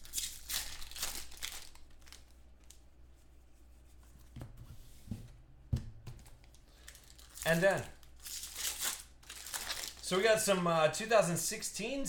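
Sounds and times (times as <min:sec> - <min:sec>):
foil wrapper crinkling: 0:00.0 - 0:02.9, 0:06.2 - 0:10.3.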